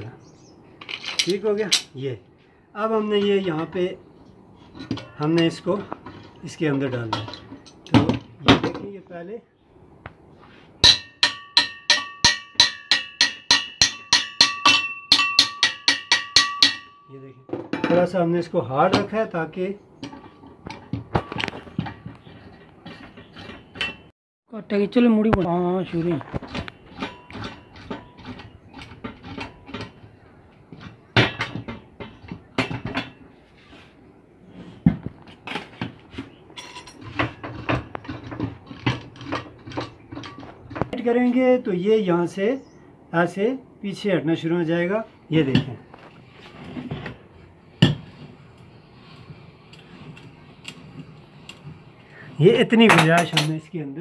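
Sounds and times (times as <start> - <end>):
steel parts clinking and knocking: 0.8 - 2.0, 10.8 - 18.2, 36.5 - 41.0, 52.8 - 53.6
hammer striking steel tube: 10.8 - 17.1
sharp metal knocks: 10.8 - 18.2.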